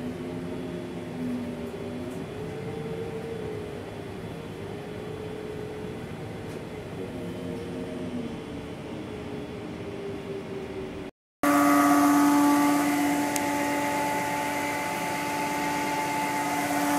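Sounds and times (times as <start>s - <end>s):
bus engine idling with whine: 0.0s - 16.9s
hum inside bus: 0.0s - 16.9s.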